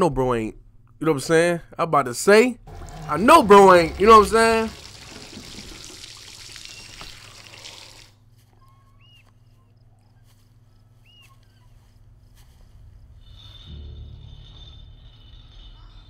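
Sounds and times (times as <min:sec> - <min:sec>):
low hum: 0:02.5 - 0:06.0, 0:08.2 - 0:16.0
faint chirps: 0:06.6 - 0:12.1.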